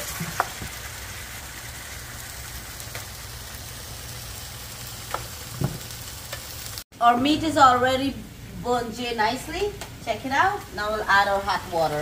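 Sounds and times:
curry sizzling in a pot: 0.0 - 6.9.

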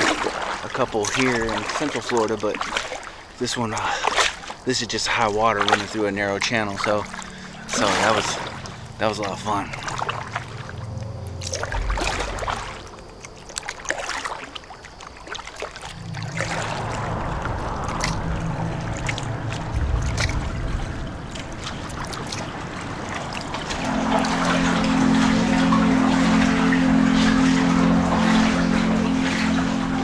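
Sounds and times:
paddle splashing in water: 0.0 - 30.0
water rushing past hull: 0.0 - 30.0
low background music: 5.6 - 14.8, 16.0 - 30.0.

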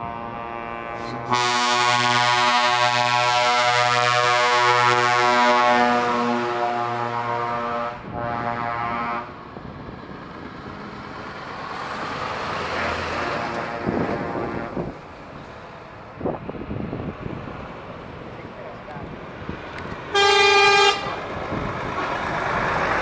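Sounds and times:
truck air horn: 0.0 - 9.4, 12.7 - 14.9, 20.1 - 21.2
heavy truck passing: 0.0 - 23.0.

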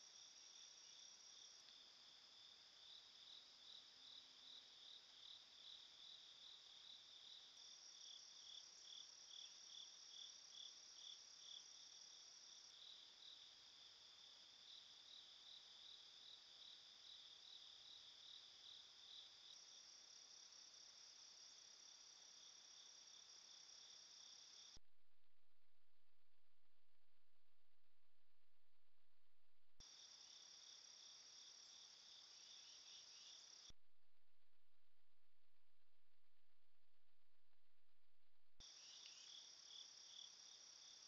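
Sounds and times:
insects trilling and chirping: 0.0 - 24.8, 29.8 - 33.7, 38.6 - 41.0.

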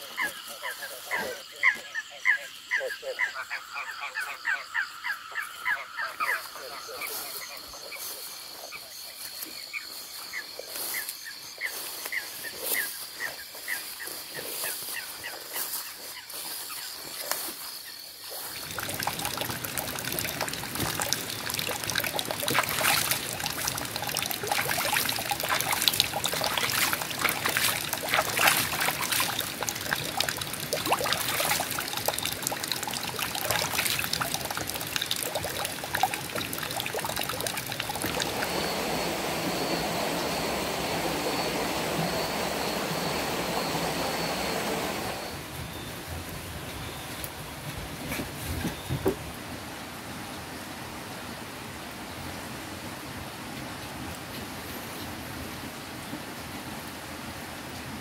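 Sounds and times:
high insect trill: 0.0 - 45.5
stream trickling over rocks: 18.2 - 45.4.

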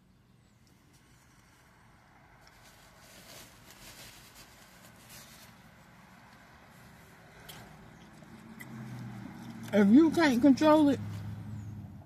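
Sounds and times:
person chewing food: 7.3 - 9.8.

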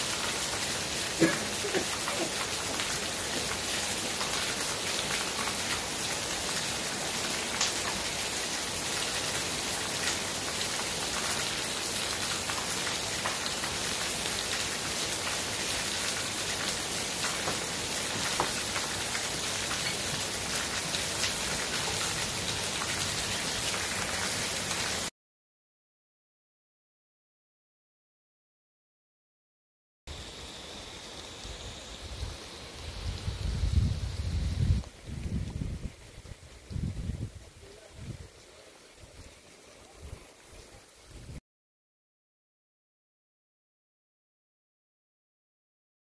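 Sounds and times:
heavy rain pouring: 0.0 - 25.1, 30.1 - 41.4.

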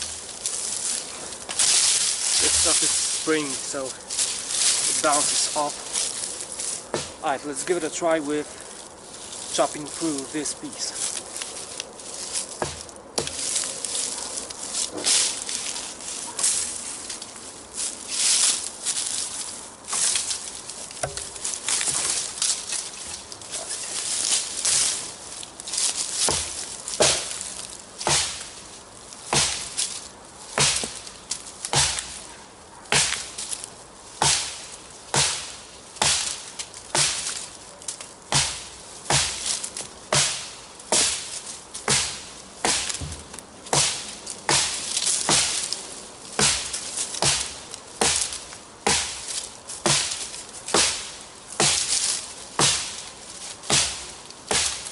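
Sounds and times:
blade chopping into log: 6.9 - 7.2, 12.5 - 13.6, 21.0 - 22.2, 26.2 - 28.5, 29.3 - 29.8, 30.6 - 31.1, 31.7 - 32.2, 32.9 - 33.4, 34.2 - 37.5, 38.3 - 45.8, 46.4 - 53.0, 53.6 - 54.9.

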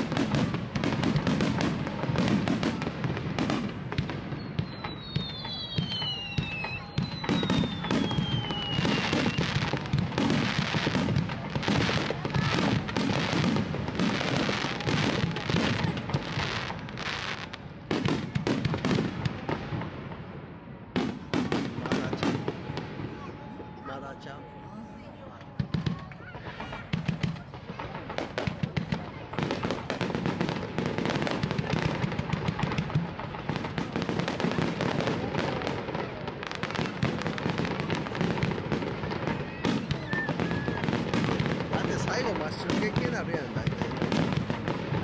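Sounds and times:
fireworks bursting and crackling: 0.0 - 45.0
falling firework whistles: 3.6 - 17.4, 36.6 - 44.8.

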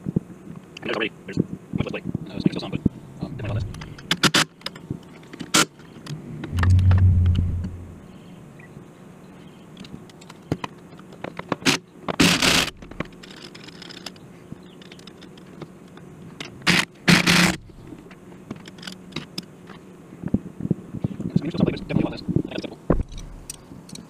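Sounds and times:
steady low hum: 2.7 - 4.1, 6.0 - 9.0.

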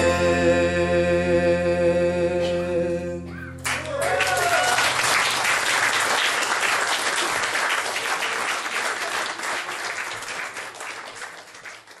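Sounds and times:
audience applause: 3.6 - 12.0.

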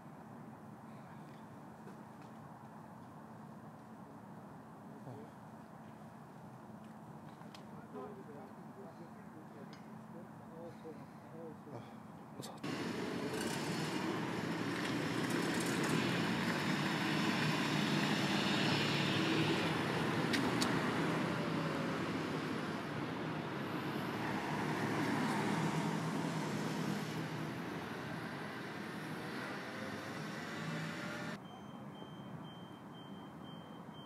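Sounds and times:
traffic noise: 0.0 - 34.0.

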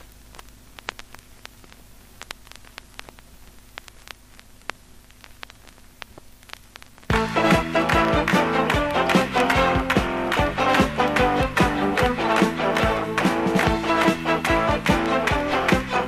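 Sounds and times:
vinyl clicks and pops: 0.0 - 16.0
vinyl record hiss and hum: 0.0 - 16.0
band music: 7.1 - 16.0.

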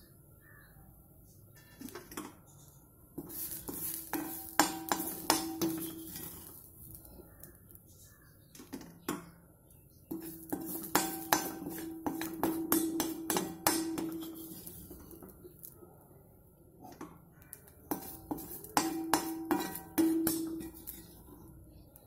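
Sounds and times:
metal spoon scraping a pan: 3.2 - 7.4, 10.1 - 15.5, 16.8 - 21.8.

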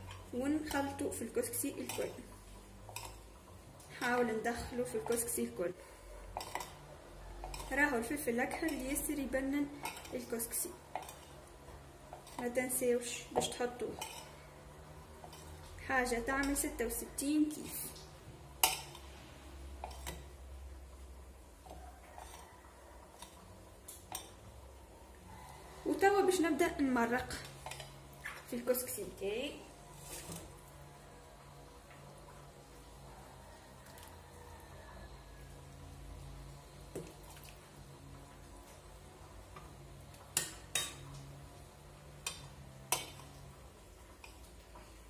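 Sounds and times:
metal ladle clinking on pot: 6.3 - 6.8, 7.4 - 7.8, 13.4 - 14.4, 18.6 - 19.0, 40.3 - 41.0.

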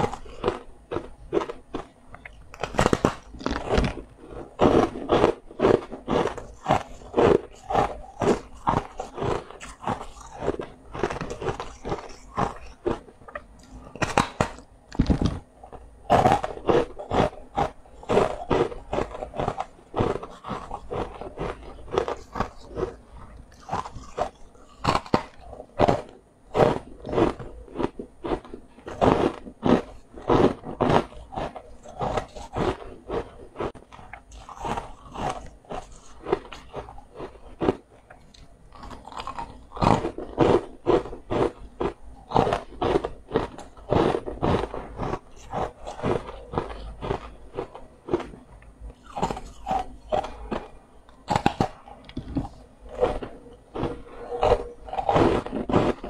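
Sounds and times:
crunchy food chewing: 0.0 - 56.0.

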